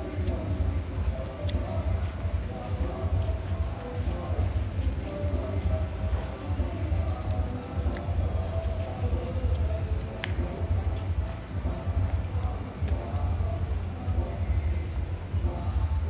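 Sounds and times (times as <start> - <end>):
crickets chirping: 0.0 - 16.0.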